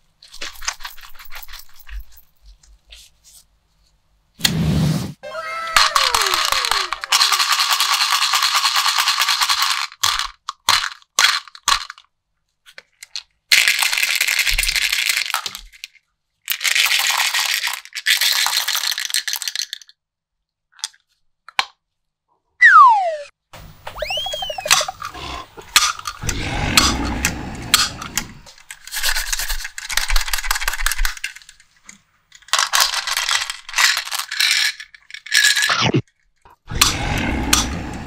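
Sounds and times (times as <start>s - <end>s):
candies pouring and rattling: 5.8s - 12.1s, 13.5s - 15.9s, 16.5s - 19.9s, 32.4s - 35.7s
falling whistle-like effect tones: 22.6s - 23.3s, 23.9s - 25.0s.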